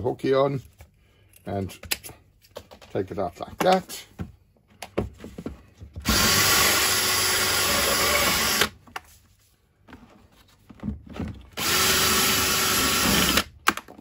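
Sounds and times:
drill cutting through plastic: 6.0 - 8.8, 11.6 - 13.6.

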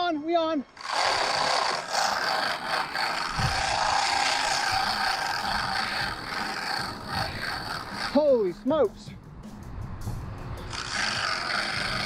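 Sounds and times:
fishing reel drag whirring: 0.7 - 8.5, 10.6 - 12.0.

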